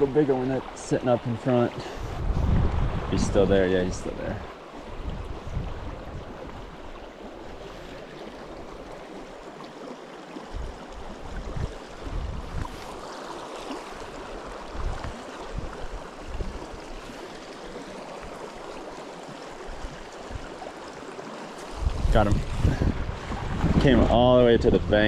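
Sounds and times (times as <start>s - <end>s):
creek babbling over gravel: 6.0s - 22.8s.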